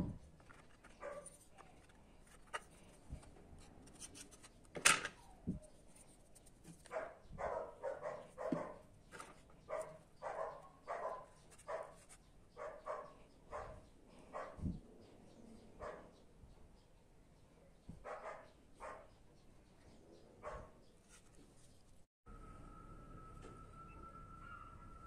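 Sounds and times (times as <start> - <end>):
dog barking: 1.0 - 1.3, 6.9 - 8.8, 9.7 - 12.0, 12.6 - 14.6, 15.8 - 16.1, 18.0 - 19.2, 20.4 - 20.8.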